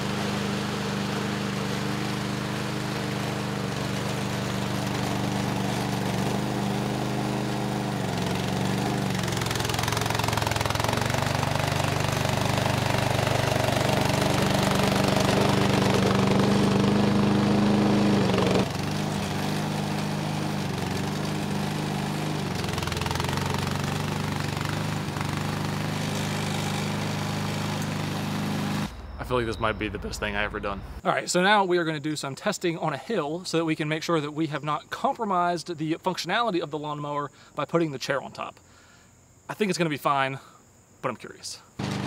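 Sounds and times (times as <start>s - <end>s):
small mower engine running: 0.0s - 28.9s, 41.8s - 42.0s.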